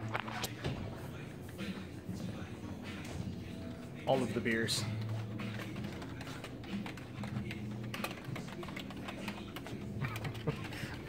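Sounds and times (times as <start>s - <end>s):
keyboard typing clicks: 5.0s - 10.7s.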